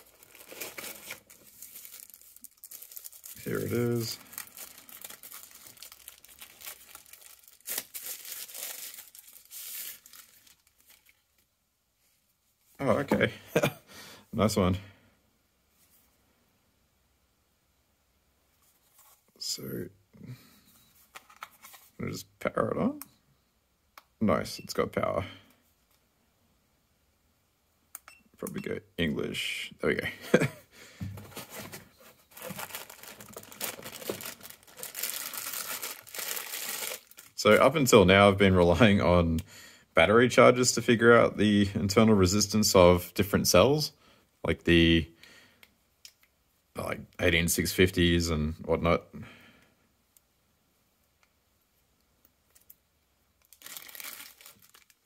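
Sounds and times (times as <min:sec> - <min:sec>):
plastic bag tearing and crinkling: 0:00.0 - 0:11.2, 0:32.3 - 0:37.5, 0:53.4 - 0:55.0.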